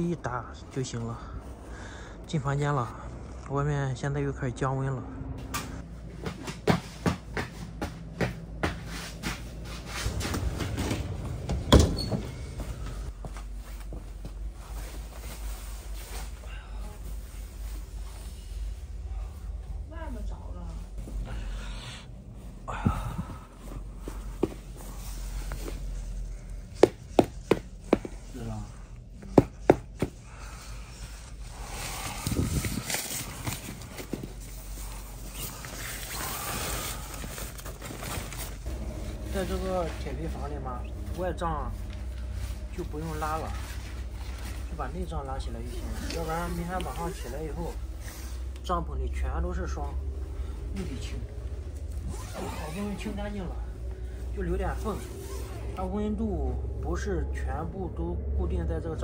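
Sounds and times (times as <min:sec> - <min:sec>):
footsteps in metal room: 0:06.1 - 0:15.4
tent fabric rustling: 0:12.6 - 0:19.5, 0:31.0 - 0:48.6, 0:50.5 - 0:55.9.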